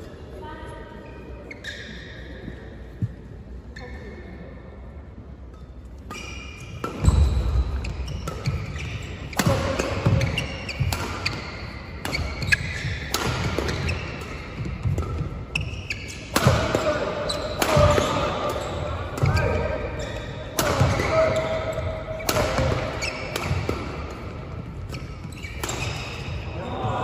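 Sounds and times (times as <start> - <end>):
rackets striking shuttlecock: 6.8 - 15.4, 16.2 - 19.7, 22.2 - 24.2.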